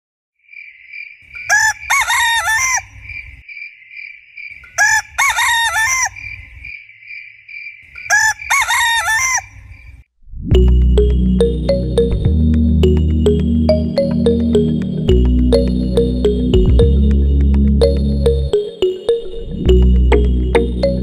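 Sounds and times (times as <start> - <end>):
rooster crowing: 1.4 - 3.0, 4.8 - 6.3, 8.1 - 9.6
high-pitched pulsing chirp: 10.5 - 21.0
music: 10.5 - 21.0.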